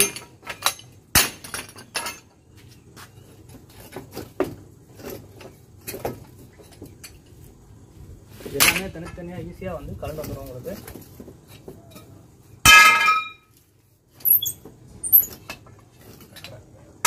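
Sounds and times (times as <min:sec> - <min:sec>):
pipes clattering on concrete floor: 0:00.0 - 0:02.4, 0:10.1 - 0:16.7.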